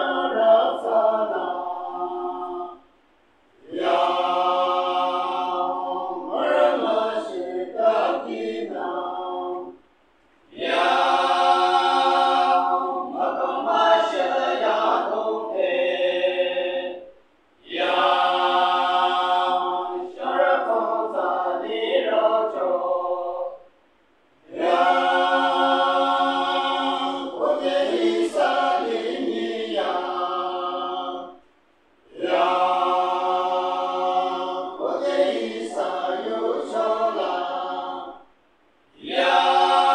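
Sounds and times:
men's choir singing a cappella: 0.0s - 2.9s, 3.6s - 9.8s, 10.5s - 23.7s, 24.5s - 31.4s, 32.0s - 38.3s, 39.0s - 39.9s.

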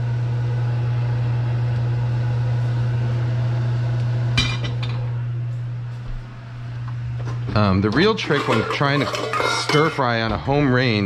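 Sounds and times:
metal cookware clattering: 8.0s - 10.2s.

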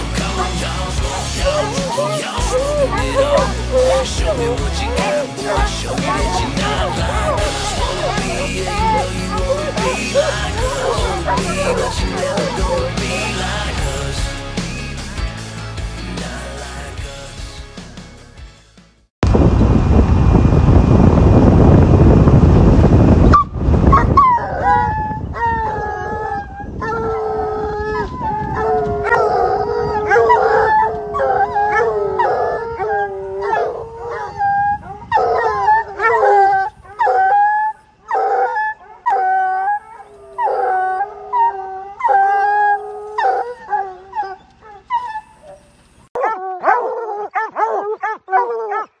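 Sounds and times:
hound baying: 0.0s - 14.2s, 23.9s - 49.0s
loud rushing noise: 19.2s - 23.9s.

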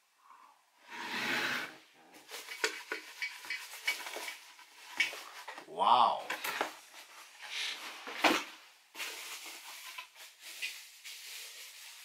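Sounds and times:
rustling in cardboard box: 6.8s - 12.0s.

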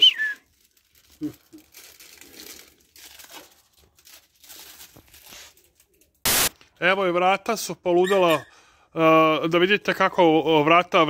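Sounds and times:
plastic packaging crinkling: 0.0s - 6.2s.

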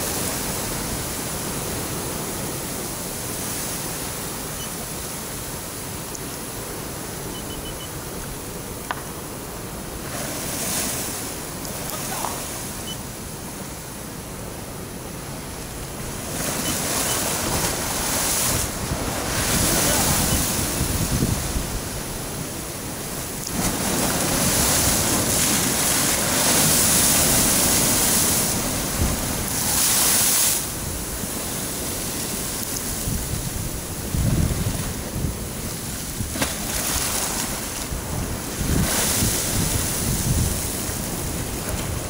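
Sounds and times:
ocean waves breaking on rocks: 0.0s - 42.0s.

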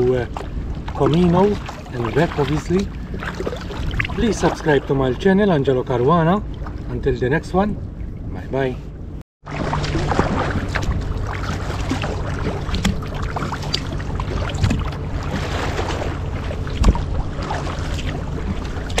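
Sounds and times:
water splashing against kayak hull: 0.0s - 5.2s, 9.4s - 19.0s
wind rumble on microphone: 0.0s - 19.0s.

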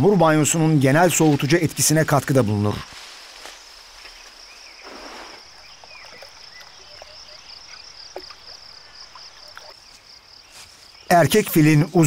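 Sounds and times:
insect chorus trilling: 1.0s - 12.0s
short rushing hiss: 4.8s - 5.4s.

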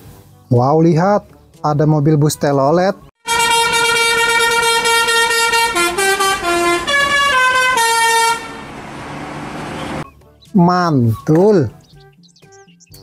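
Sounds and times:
musical bus horn: 3.2s - 10.0s
engine and traffic hiss: 6.4s - 10.0s.

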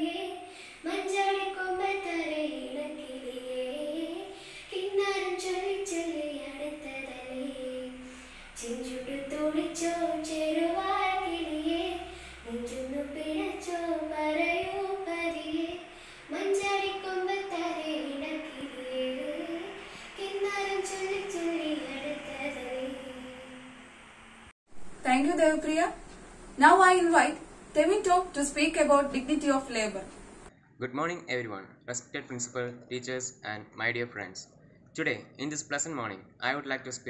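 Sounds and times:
girl singing unaccompanied: 0.0s - 23.6s.

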